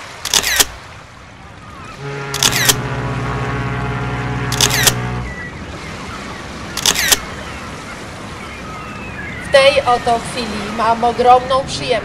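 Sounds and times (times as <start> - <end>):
camera shutter clicks: 0.2 - 0.8, 2.3 - 2.9, 4.5 - 5.1, 6.8 - 7.3
steady low tone: 1.9 - 5.5.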